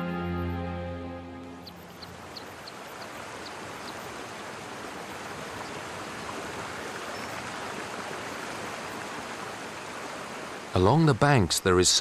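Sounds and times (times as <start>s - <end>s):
stream rushing over rocks: 1.8s - 12.0s.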